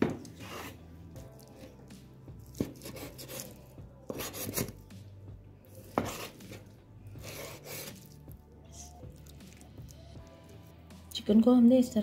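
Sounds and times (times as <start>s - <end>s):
knife slicing and scraping: 0.0s - 1.8s, 2.4s - 5.0s, 5.7s - 9.6s.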